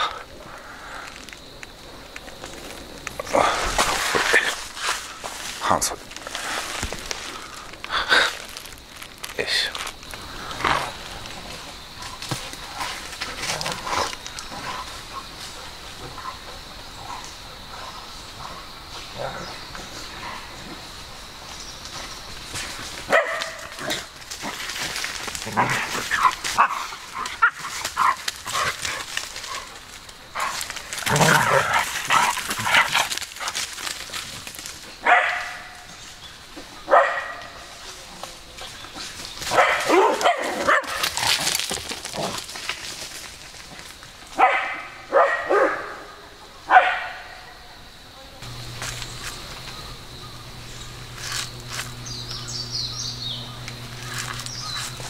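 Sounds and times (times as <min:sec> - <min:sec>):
dogs barking and yipping: 0:23.0 - 0:24.2, 0:35.0 - 0:36.1, 0:36.7 - 0:37.8, 0:39.1 - 0:41.4, 0:44.3 - 0:47.6.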